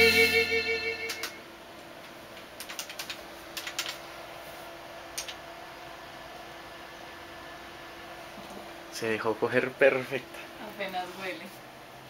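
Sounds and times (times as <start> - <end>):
keyboard typing clicks: 1.0 - 1.4, 2.6 - 4.0.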